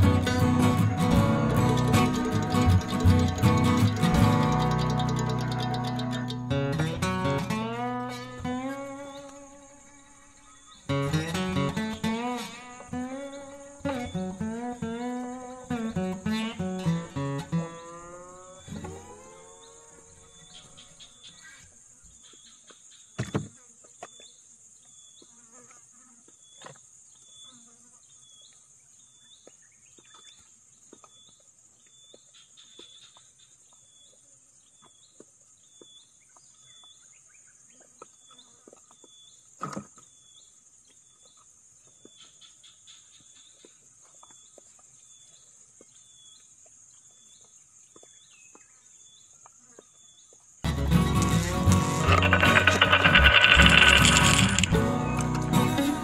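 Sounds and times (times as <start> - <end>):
loud music: 0.0 - 4.8
high-pitched insect drone: 0.0 - 21.1, 50.7 - 56.0
high animal chirp: 0.0 - 21.6
small clicks: 51.1 - 55.4.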